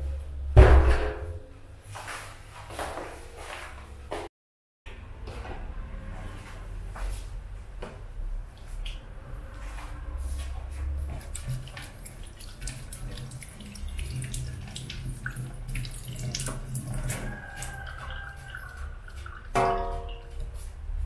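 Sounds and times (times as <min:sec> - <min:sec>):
hands washing: 0:10.7 - 0:20.7
tap water splashing into sink: 0:11.0 - 0:20.3.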